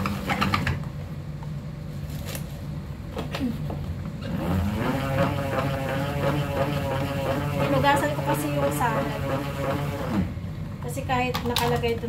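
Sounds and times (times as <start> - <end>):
salad spinner whirring: 4.2 - 10.4.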